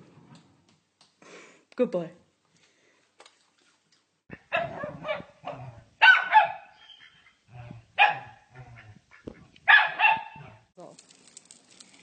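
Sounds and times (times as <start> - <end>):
dog barking: 4.5 - 6.8, 8.0 - 8.9, 9.7 - 10.6.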